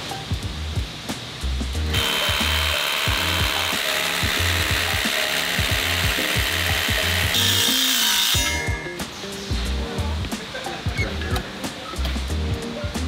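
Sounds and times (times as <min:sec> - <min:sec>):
background music with beat: 0:00.0 - 0:13.0
hammer drill boring into concrete: 0:01.9 - 0:08.7.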